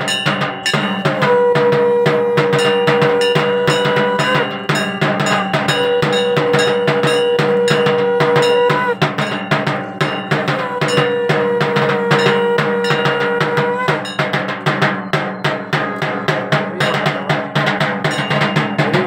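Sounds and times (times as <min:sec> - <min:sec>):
clanging metal bells: 0:00.0 - 0:19.0
rapid dense drumming: 0:00.0 - 0:19.0
long held tone dipping in pitch: 0:00.8 - 0:09.0, 0:10.3 - 0:14.2.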